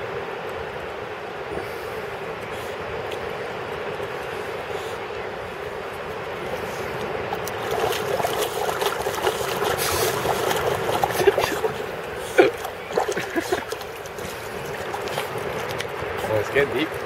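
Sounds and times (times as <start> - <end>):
dog splashing in shallow water: 7.2 - 17.0.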